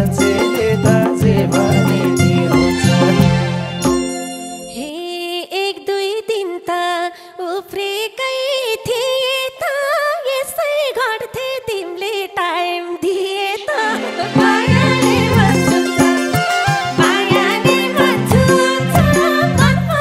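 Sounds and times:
band drums and instruments: 0:00.0 - 0:04.6
woman singing into a microphone: 0:04.7 - 0:20.0.

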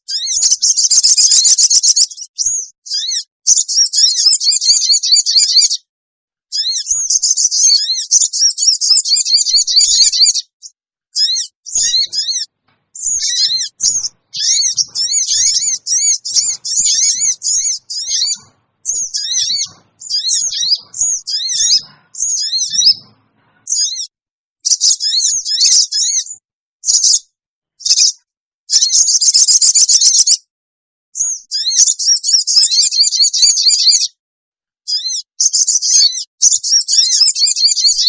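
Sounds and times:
continuous bird trill: 0:00.0 - 0:05.9, 0:06.5 - 0:30.5, 0:31.2 - 0:34.2, 0:34.9 - 0:38.0
bird chirping shrilly: 0:00.1 - 0:05.8, 0:06.5 - 0:10.5, 0:11.2 - 0:27.2, 0:27.8 - 0:30.3.

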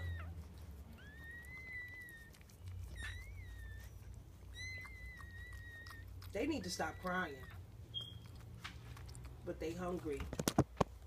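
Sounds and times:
puppies squealing cries: 0:00.0 - 0:08.5.

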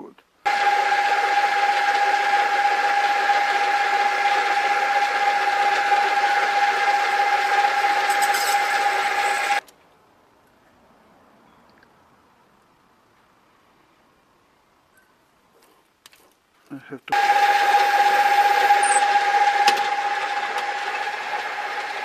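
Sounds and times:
metal lathe whining: 0:00.5 - 0:09.6, 0:17.1 - 0:22.0.

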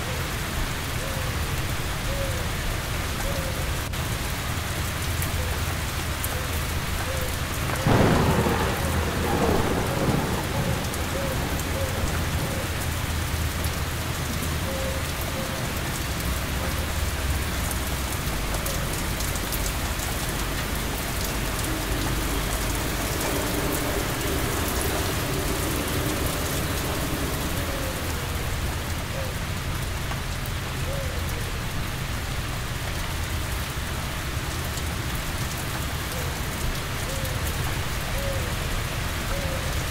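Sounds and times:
heavy rain: 0:00.0 - 0:39.9
thunder rumbling: 0:07.4 - 0:30.8.

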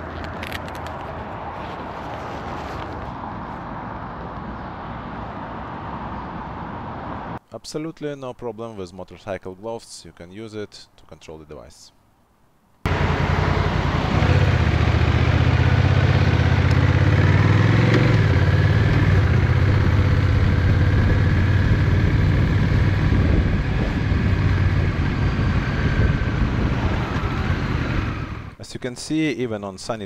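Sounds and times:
motorcycle engine running: 0:12.9 - 0:28.6.

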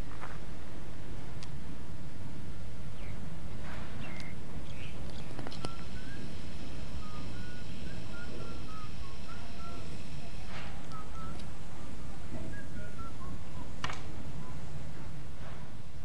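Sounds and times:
steady low rumble: 0:00.0 - 0:16.0
bird chirping: 0:02.9 - 0:03.2, 0:03.9 - 0:14.7.

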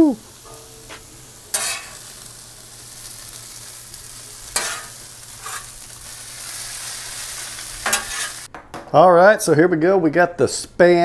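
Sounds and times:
food sizzling on a griddle: 0:00.0 - 0:08.5
metal spatula scraping griddle: 0:00.5 - 0:02.2, 0:03.0 - 0:08.5.

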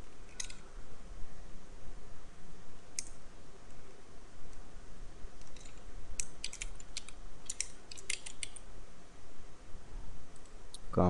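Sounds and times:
computer keyboard key clicks: 0:06.2 - 0:08.6.

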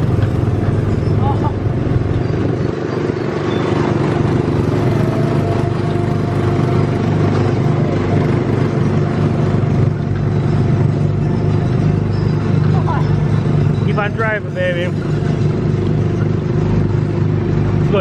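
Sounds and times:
small gasoline engine running: 0:00.0 - 0:18.0.

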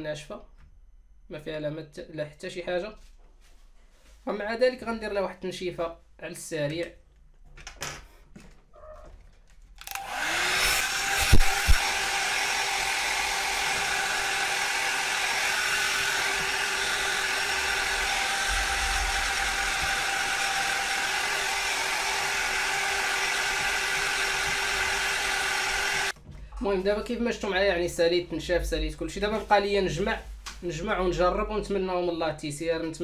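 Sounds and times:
hot-air blower humming: 0:09.8 - 0:26.2.

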